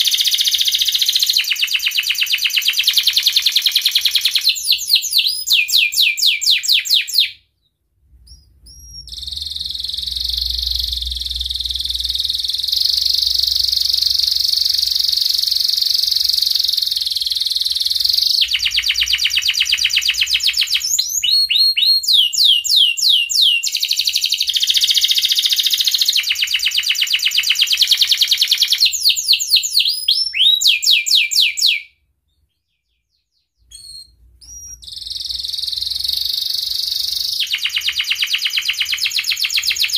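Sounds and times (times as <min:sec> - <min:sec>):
canary singing chirps and trills: 0:00.0 - 0:39.9.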